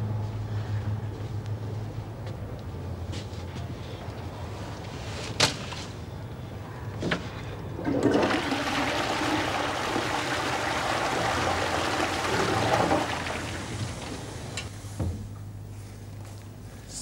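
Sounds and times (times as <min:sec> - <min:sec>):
toilet water rushing: 0:07.8 - 0:14.6.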